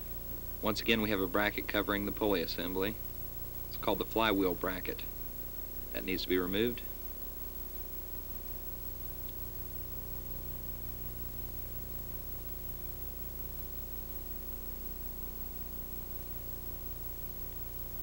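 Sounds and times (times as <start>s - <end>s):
background hiss: 0.0s - 18.0s
faint steady tones: 0.0s - 18.0s.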